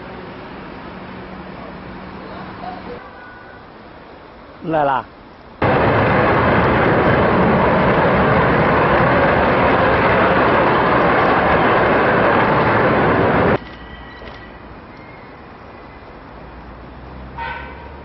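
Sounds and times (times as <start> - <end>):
jet engines roaring: 5.6 - 13.6.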